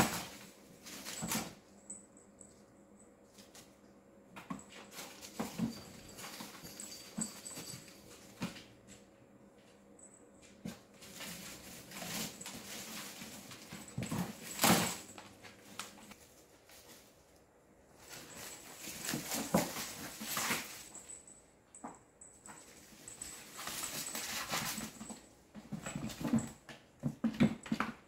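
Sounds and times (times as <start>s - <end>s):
kittens scrabbling and knocking: 4.4s - 8.8s, 10.6s - 16.1s, 18.0s - 21.2s, 21.8s - 28.0s
plastic fronds rustling: 11.0s - 17.1s.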